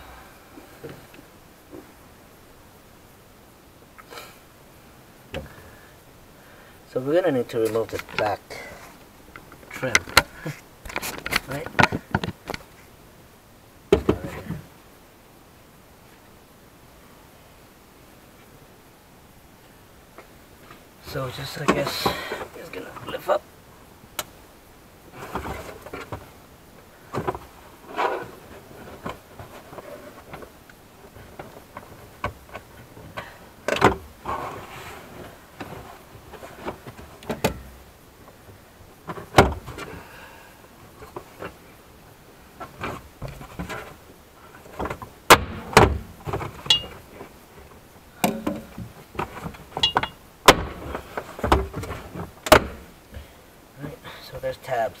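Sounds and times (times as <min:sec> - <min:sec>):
plastic panel scraping and rustling: 0:09.8 - 0:12.8, 0:25.1 - 0:26.3, 0:27.1 - 0:37.7, 0:42.6 - 0:52.8.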